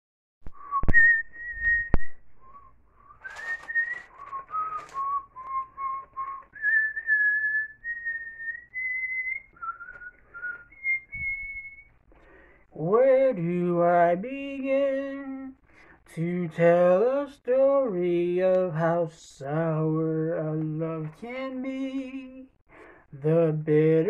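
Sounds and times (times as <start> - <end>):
man whistling a melody: 0.6 - 12.0
sharp clicks: 3.2 - 6.5.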